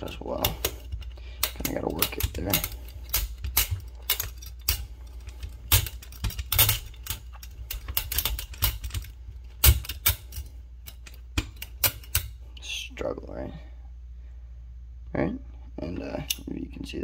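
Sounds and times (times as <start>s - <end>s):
spring coils scraping metal tube: 0.0s - 12.4s.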